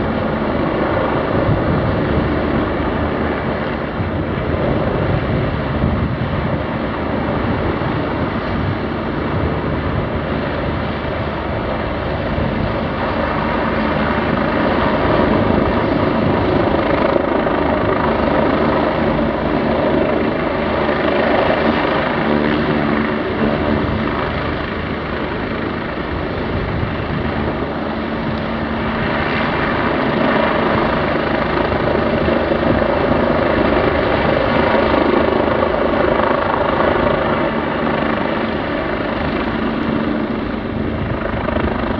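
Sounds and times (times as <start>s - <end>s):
helicopter hovering: 0.0s - 41.9s.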